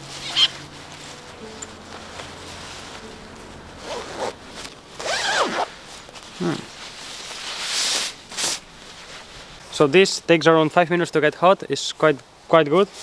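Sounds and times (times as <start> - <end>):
zipper being zipped up: 0.1 - 0.6, 3.8 - 8.6.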